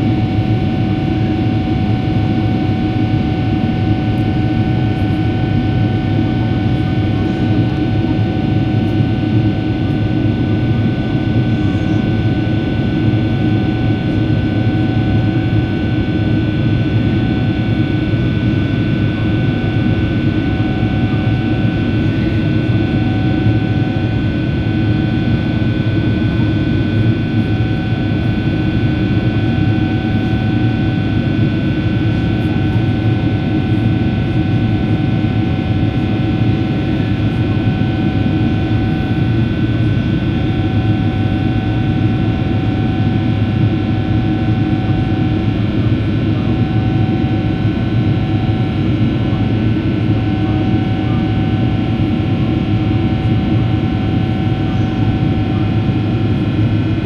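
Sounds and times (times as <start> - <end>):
jet engine roar: 0.0 - 57.0.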